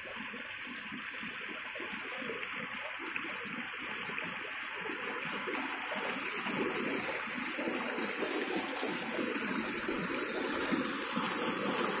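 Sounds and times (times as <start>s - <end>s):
river water rushing over rocks: 4.6s - 12.0s.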